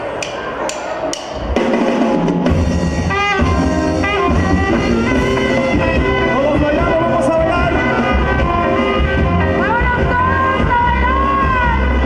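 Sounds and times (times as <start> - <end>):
live dance band playing: 0.0 - 12.0
saxophone section melody: 2.5 - 12.0.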